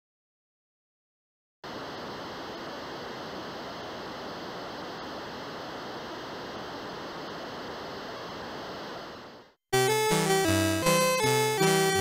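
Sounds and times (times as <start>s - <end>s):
steady rushing hiss: 1.6s - 10.3s.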